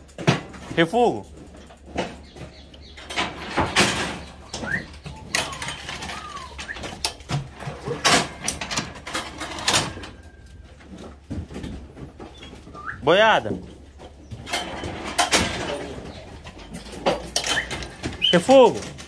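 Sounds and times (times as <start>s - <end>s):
cattle knocking and banging: 0.0s - 19.0s
bird chirps: 2.0s - 7.1s.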